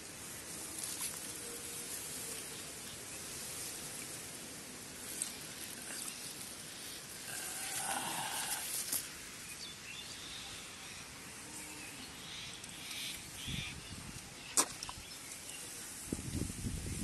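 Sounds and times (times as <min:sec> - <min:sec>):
rice plants rustling: 0:00.0 - 0:09.6
muddy water splashing: 0:00.6 - 0:01.8.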